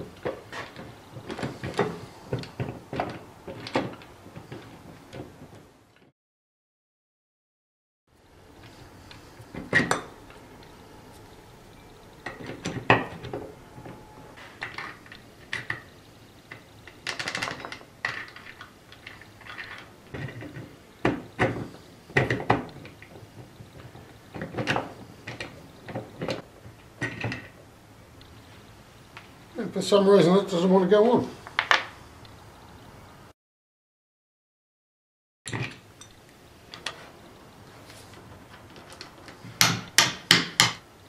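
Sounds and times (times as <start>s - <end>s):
cast iron parts clinking: 8.6s - 15.9s.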